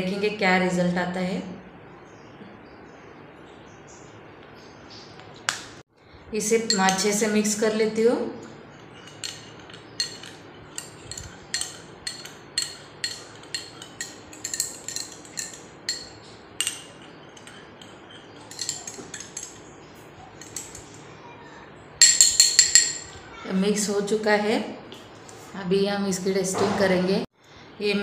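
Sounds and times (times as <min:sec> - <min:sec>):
spoon clinking against glass bowl: 0:06.5 - 0:07.3, 0:08.7 - 0:19.7, 0:20.4 - 0:21.0, 0:22.0 - 0:23.2.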